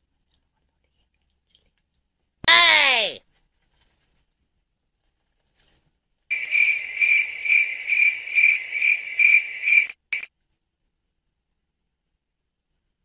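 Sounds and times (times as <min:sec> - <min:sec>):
cricket chirping: 0:06.3 - 0:10.3.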